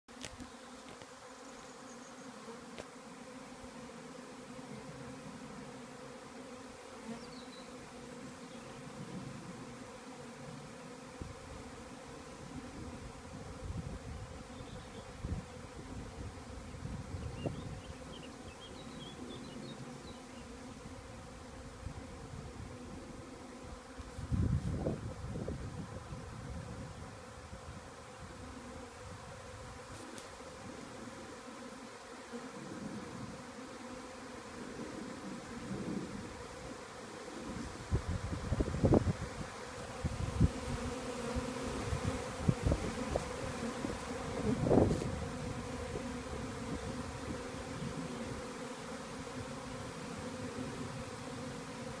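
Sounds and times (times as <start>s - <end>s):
bee swarm humming: 0.1s - 52.0s.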